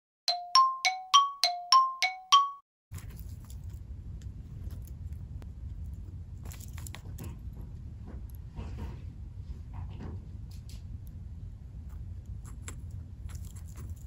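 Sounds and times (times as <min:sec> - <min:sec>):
chime jingle: 0:00.3 - 0:02.6
low steady hum: 0:03.0 - 0:14.0
guinea pig nibbling chew toy: 0:11.8 - 0:14.0.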